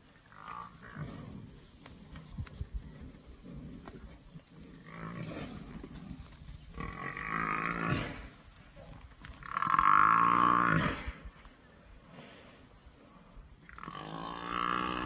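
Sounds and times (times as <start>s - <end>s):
buffalo bellowing: 6.7s - 8.3s, 9.4s - 11.2s, 13.7s - 15.0s.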